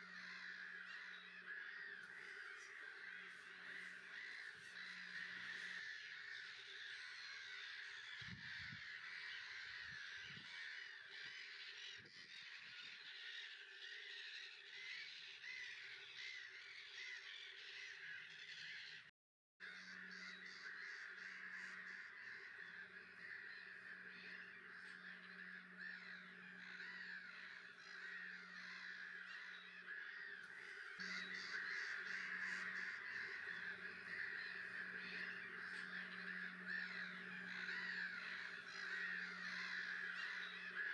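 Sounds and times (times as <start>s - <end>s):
gull colony calling: 0.0s - 19.0s, 19.6s - 40.9s
low steady hum: 21.2s - 40.9s.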